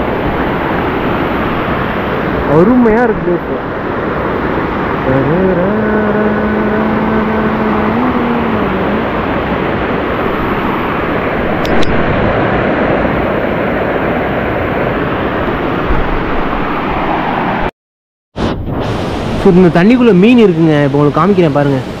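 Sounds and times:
waterfall rushing: 0.0s - 17.7s, 18.7s - 22.0s
short click: 11.6s - 12.0s.

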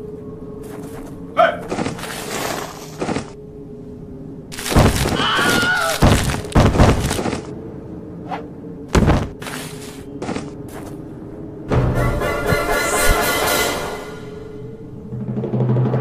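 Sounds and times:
steady low hum: 0.0s - 5.2s, 6.0s - 16.0s
cartoon thuds: 4.7s - 7.4s, 8.9s - 9.4s.

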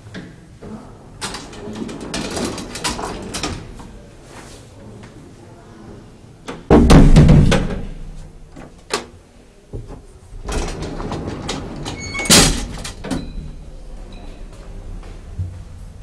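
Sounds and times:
elevator door rattling slide: 1.2s - 3.7s, 10.4s - 13.7s
elevator door banging shut: 10.4s - 13.6s.

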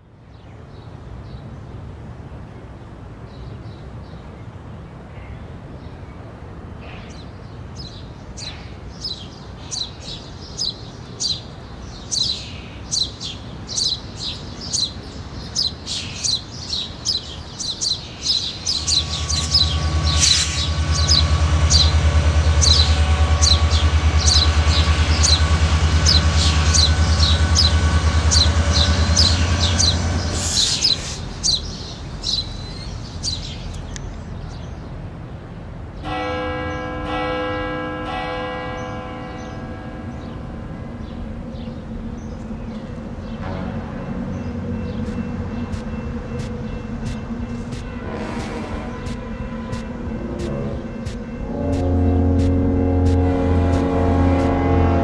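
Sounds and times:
bird chirping: 7.9s - 25.4s, 26.0s - 34.8s
diesel locomotive rumble: 11.0s - 37.8s, 38.6s - 55.0s
steady whine: 18.1s - 34.3s, 40.7s - 55.0s.

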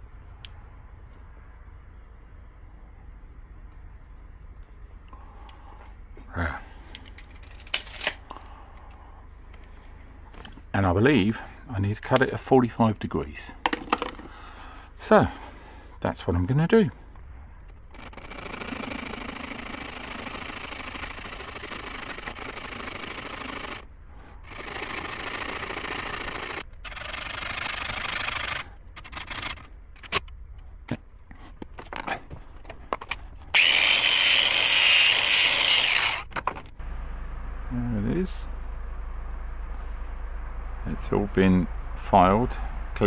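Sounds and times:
loud steady noise: 33.5s - 43.0s
hacksaw cutting metal pipe: 33.6s - 36.3s.

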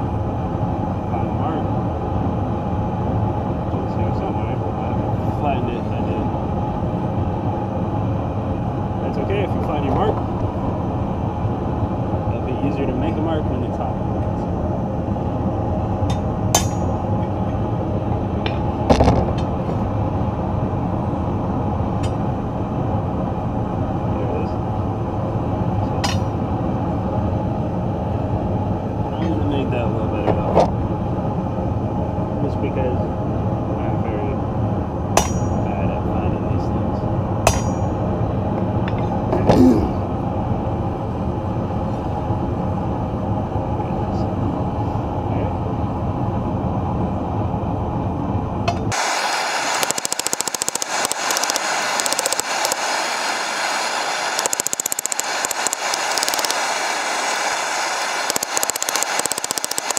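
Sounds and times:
gas forge burner roaring: 0.0s - 59.9s
steel bar clinking on anvil: 16.1s - 16.9s, 35.2s - 35.6s, 37.5s - 37.9s
forge rushing noise: 48.9s - 59.9s.

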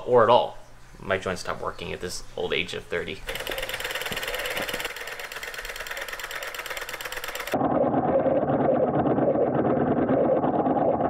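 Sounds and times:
solenoid engine clattering: 3.3s - 7.6s.

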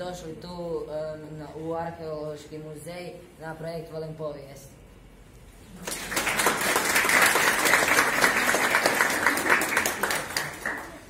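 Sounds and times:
small group applauding: 5.7s - 11.0s.

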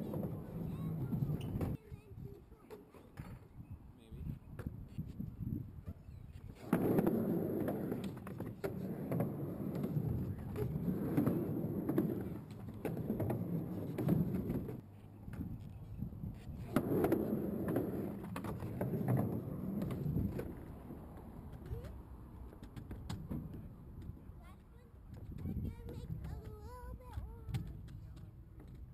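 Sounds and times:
skateboard clacks: 0.0s - 1.8s, 6.4s - 15.8s, 16.4s - 28.9s
skateboard wheels rumbling on ramp: 0.0s - 1.8s, 6.5s - 24.3s.

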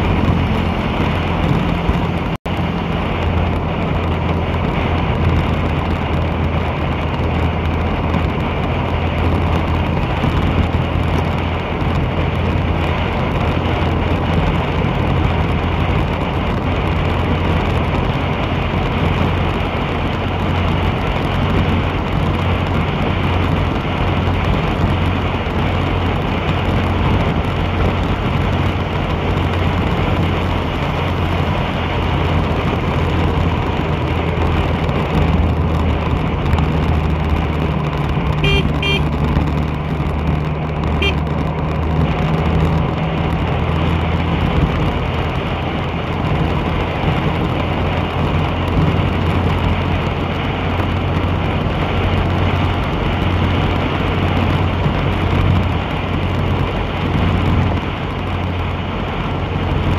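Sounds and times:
vehicle engine hum: 0.0s - 59.9s
wind and tyre noise: 0.0s - 59.9s
short high horn beeps: 38.4s - 39.1s.

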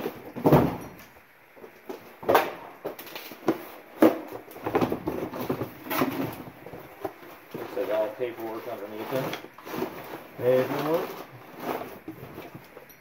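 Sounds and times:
knocks and thuds: 0.3s - 0.9s.

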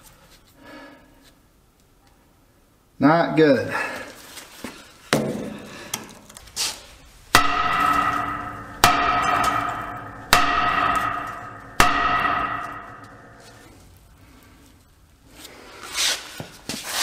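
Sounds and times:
hammer striking ringing brake drum: 7.3s - 13.8s.

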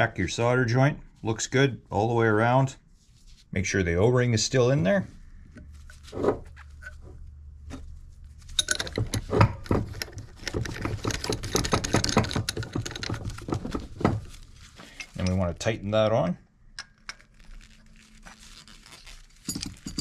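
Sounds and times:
metal fittings clicking: 8.6s - 13.6s.

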